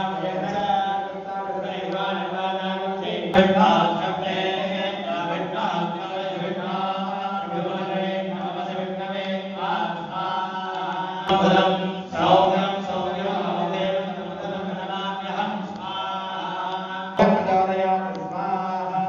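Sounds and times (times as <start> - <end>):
men chanting mantras: 0.0 - 19.0.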